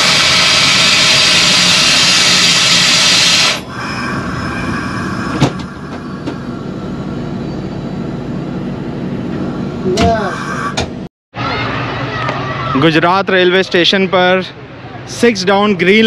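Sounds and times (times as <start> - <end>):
loud rushing hiss: 0.0 - 7.4
train running noise: 0.0 - 11.1.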